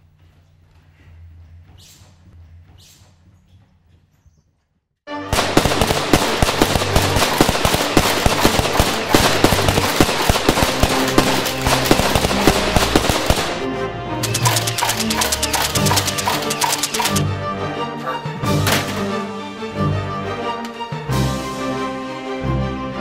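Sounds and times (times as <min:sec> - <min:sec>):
music with fast popping beat: 0:05.3 - 0:13.6, 0:14.2 - 0:17.2.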